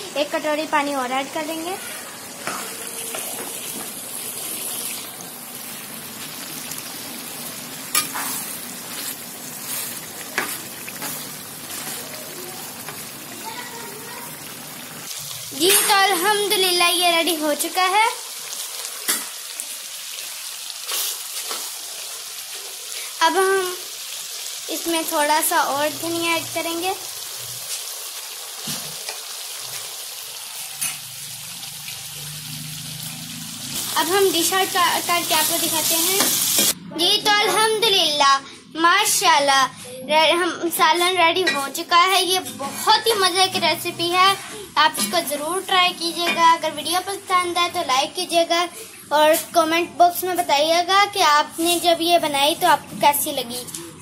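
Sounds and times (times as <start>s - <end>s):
food sizzling in a pan: 0.0s - 38.2s, 39.0s - 54.0s
spatula stirring: 7.9s - 13.1s.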